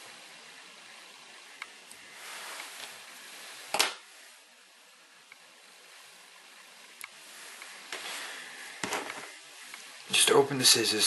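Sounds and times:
soft rustle: 2.0s - 4.6s, 5.7s - 10.2s.

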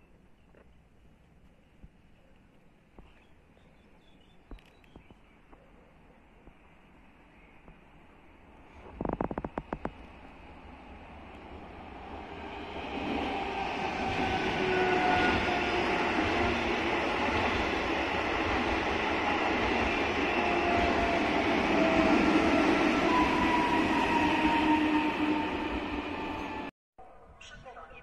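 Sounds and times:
train wheels rumbling on rail: 8.7s - 26.7s
electric train whine: 9.9s - 26.7s.

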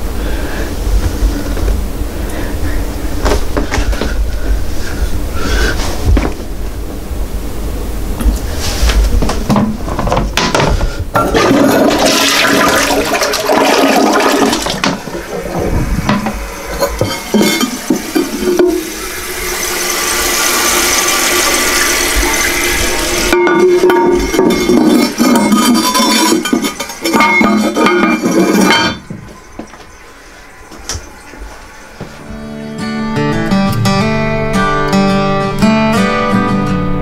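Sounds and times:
toilet tank refilling with a hiss: 11.1s - 32.2s
toilet flushing: 11.1s - 32.6s.

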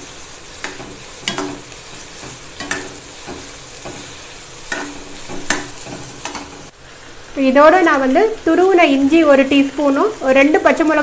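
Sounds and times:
spatula scraping pan: 0.0s - 6.7s
vegetables sizzling in oil: 0.0s - 11.0s.

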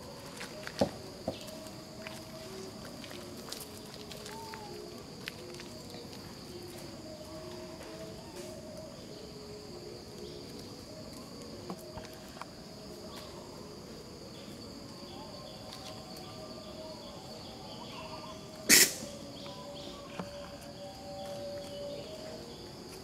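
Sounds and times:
insect drone: 0.0s - 23.0s.

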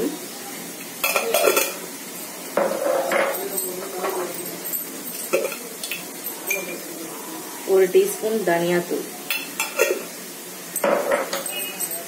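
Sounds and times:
onions sizzling in oil: 0.0s - 12.0s
spoon and metal dishes clinking: 0.8s - 1.9s, 2.6s - 6.9s, 9.2s - 10.1s, 10.7s - 12.0s.

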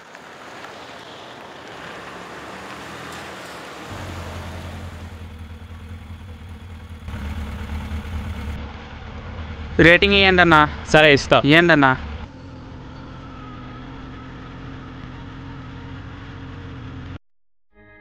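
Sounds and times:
road and street noise hiss: 0.0s - 5.4s
vehicle engine running: 0.2s - 17.2s.

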